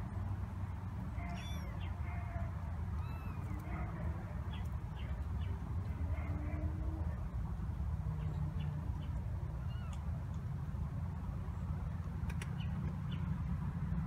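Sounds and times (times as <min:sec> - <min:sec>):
kittens mewing: 0:01.1 - 0:04.5.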